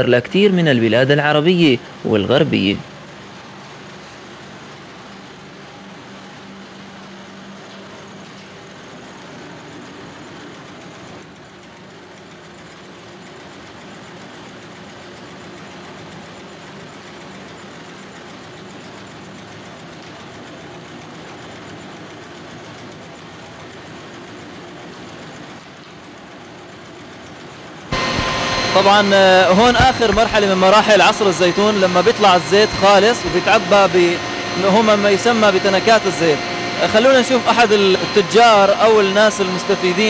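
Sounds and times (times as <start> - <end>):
low hum: 27.9 - 40.0
machinery mechanical din: 27.9 - 40.0.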